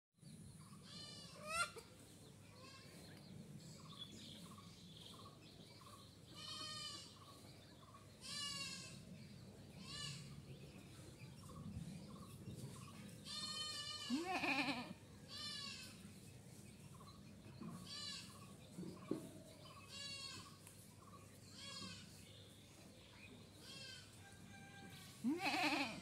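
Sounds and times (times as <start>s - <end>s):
goat bleating: 0.8s - 1.8s, 6.4s - 7.1s, 8.2s - 9.0s, 13.2s - 16.0s, 19.9s - 20.6s, 25.2s - 26.0s.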